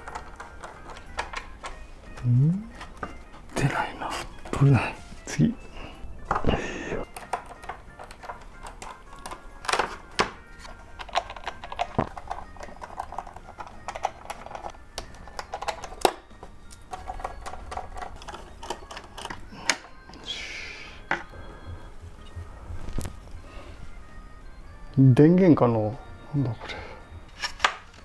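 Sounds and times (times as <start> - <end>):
tools clicking on computer parts: 11.0 - 19.9.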